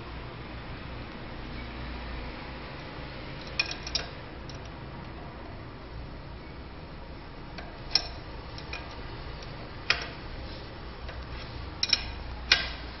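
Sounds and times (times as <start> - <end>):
wrench clinking on metal nut: 3.4 - 4.7, 7.6 - 9.0, 9.9 - 10.2, 11.8 - 12.8.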